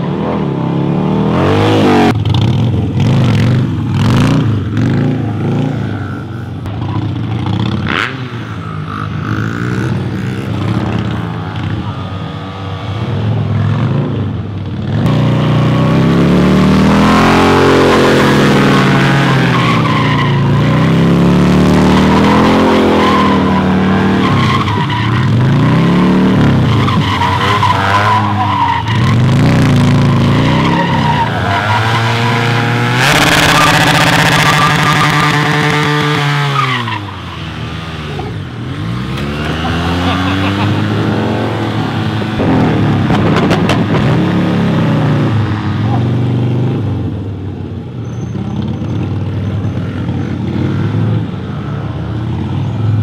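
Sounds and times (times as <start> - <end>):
motorcycle engines revving: 0.0 - 53.0
tyre squealing: 21.8 - 38.3.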